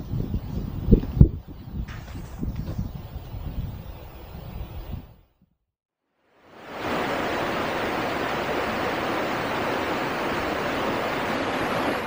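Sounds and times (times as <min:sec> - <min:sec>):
river rushing over rocks: 0:06.4 - 0:12.0.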